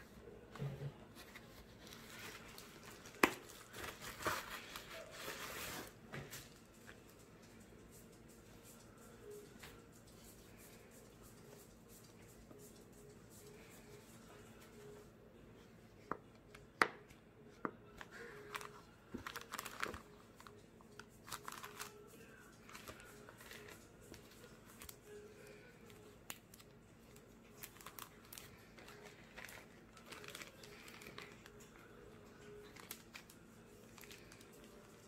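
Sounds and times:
plastic sleeve crinkling: 1.2s - 6.6s, 18.1s - 35.0s.

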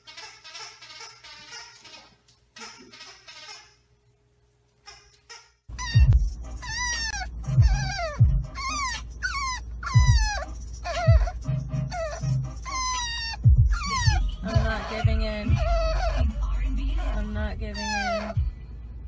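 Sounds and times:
puppy whining: 4.9s - 18.5s.

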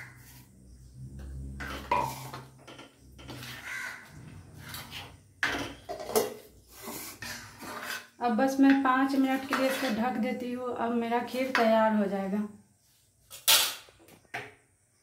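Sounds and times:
spatula scraping metal pan: 1.2s - 10.4s.

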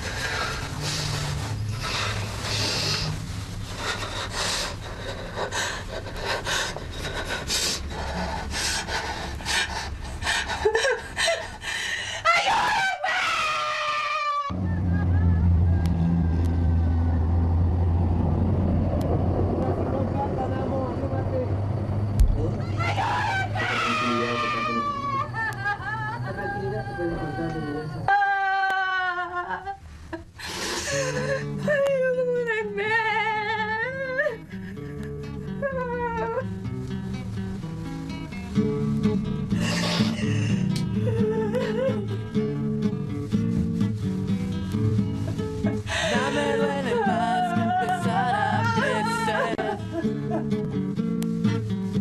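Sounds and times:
breathy hiss: 0.0s - 12.3s, 36.8s - 41.0s
woman panting in fear: 0.0s - 12.7s, 30.3s - 31.8s, 39.5s - 42.4s, 45.3s - 46.8s
woman wavering cry: 12.2s - 16.1s, 22.6s - 29.8s, 35.5s - 36.5s, 45.9s - 49.8s
woman wailing: 12.2s - 16.4s, 22.6s - 29.8s, 45.8s - 50.0s
low wavering moan: 13.4s - 29.7s
woman whimpering: 39.5s - 42.2s, 45.6s - 49.9s.

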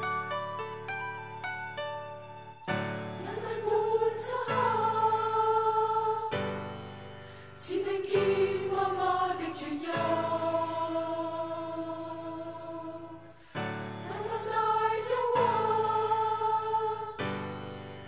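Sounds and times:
children's choir singing: 3.2s - 6.8s, 7.6s - 17.6s.

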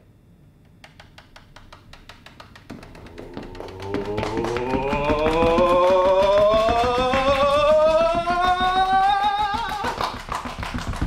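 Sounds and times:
rapid drumming taps: 0.9s - 11.0s
rising pitched tone: 2.8s - 9.8s.

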